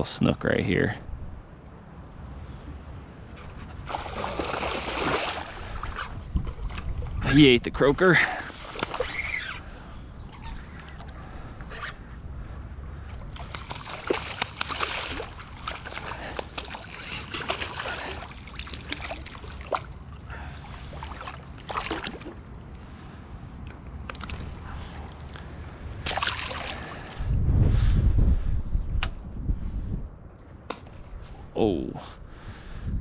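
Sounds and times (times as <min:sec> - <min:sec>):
water sloshing: 0:03.7 - 0:07.3, 0:08.2 - 0:11.2, 0:13.0 - 0:27.2
fish splashing at water surface: 0:03.9 - 0:06.1, 0:13.3 - 0:20.0, 0:20.7 - 0:22.4, 0:26.0 - 0:27.1.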